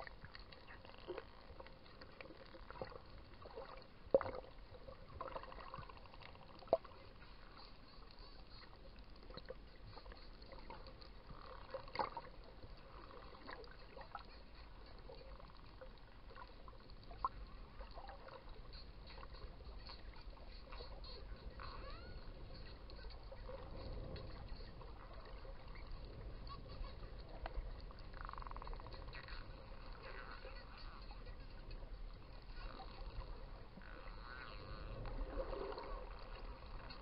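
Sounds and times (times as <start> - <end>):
low underwater rumble: 0.0 - 37.0
dolphin clicks: 5.2 - 37.0
dolphin whistles: 20.6 - 24.5.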